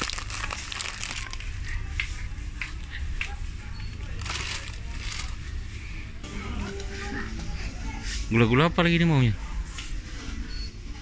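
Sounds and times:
plastic snack packets crinkling: 0:00.0 - 0:01.7, 0:04.1 - 0:05.4.

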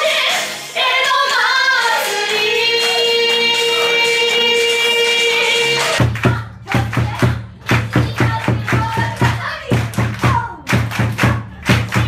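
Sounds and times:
audience clapping along: 0:00.4 - 0:12.0
large drum beaten with sticks: 0:06.0 - 0:12.0.

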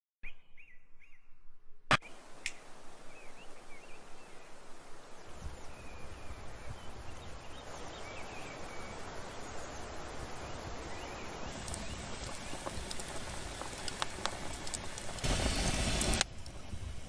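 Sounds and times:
bird chirps: 0:00.2 - 0:12.7
steady hiss: 0:02.0 - 0:17.0.

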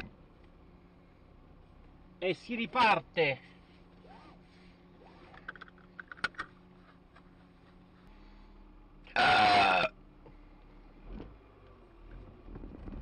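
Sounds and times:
low engine hum: 0:00.0 - 0:13.0
man burping: 0:09.1 - 0:10.0.

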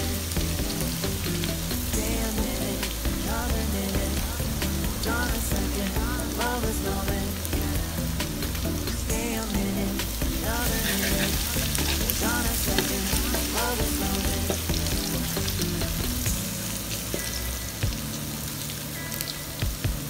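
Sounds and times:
garlic sizzling in hot oil: 0:00.0 - 0:19.6
metal spatula scraping wok: 0:10.0 - 0:13.8.

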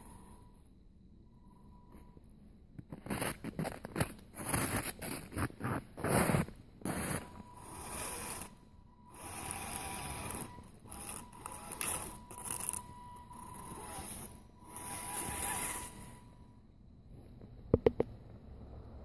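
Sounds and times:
electric motor whirring and whining: 0:06.9 - 0:16.4.

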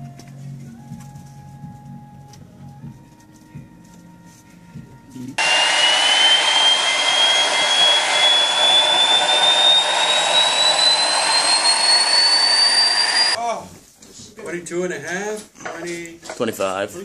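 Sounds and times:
jet engine roaring and whining: 0:05.4 - 0:13.4.

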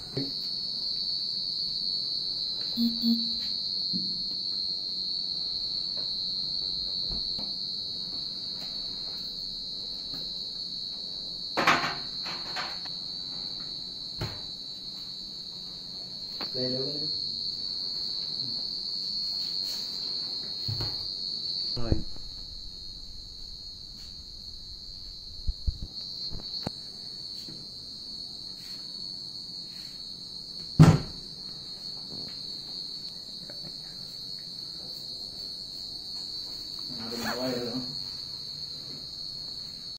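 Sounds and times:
high-pitched drone: 0:02.8 - 0:03.6.

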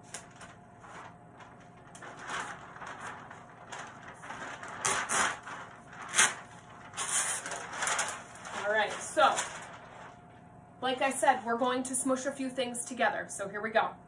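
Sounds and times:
paper sheets rustling and crinkling: 0:00.0 - 0:10.4.

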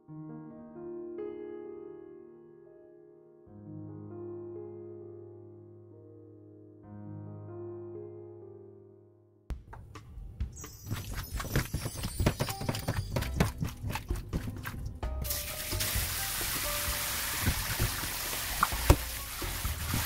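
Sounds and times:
wet squishing and clicking: 0:10.9 - 0:15.1
tap water running into bowl: 0:10.9 - 0:20.0.

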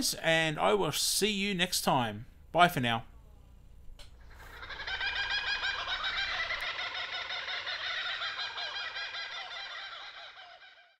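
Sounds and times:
flock of birds calling: 0:04.2 - 0:10.9.

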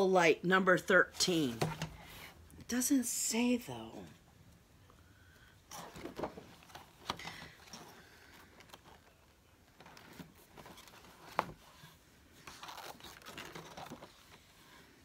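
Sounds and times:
book pages turning: 0:05.8 - 0:14.9.

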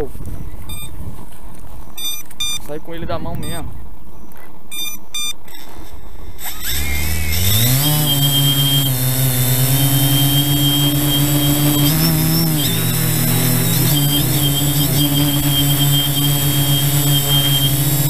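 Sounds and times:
short electronic beeps: 0:00.7 - 0:01.0, 0:02.0 - 0:02.7, 0:04.7 - 0:06.4
quadcopter motors whining: 0:04.7 - 0:18.0.

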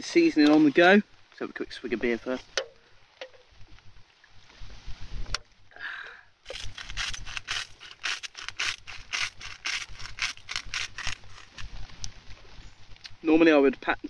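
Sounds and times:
pepper grinder grinding: 0:06.5 - 0:11.7.

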